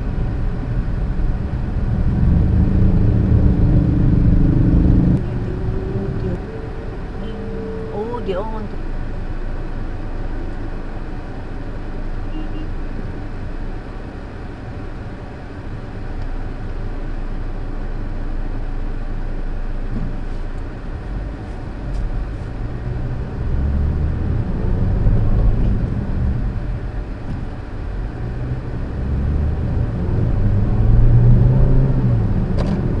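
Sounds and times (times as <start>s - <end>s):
car engine and road noise: 0.0s - 33.0s.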